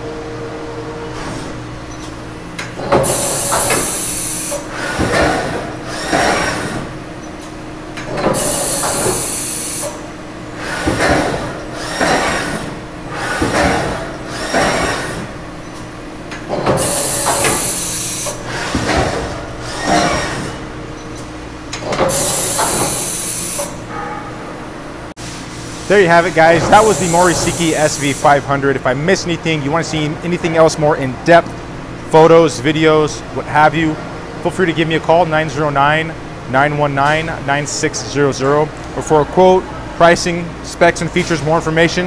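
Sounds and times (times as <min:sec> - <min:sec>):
machine whirring bursts: 0:02.6 - 0:07.2, 0:08.0 - 0:20.7, 0:21.6 - 0:23.9, 0:26.0 - 0:28.7
loud hissing blasts: 0:03.0 - 0:06.6, 0:08.4 - 0:10.0, 0:16.8 - 0:18.6, 0:22.1 - 0:23.8, 0:26.0 - 0:28.5.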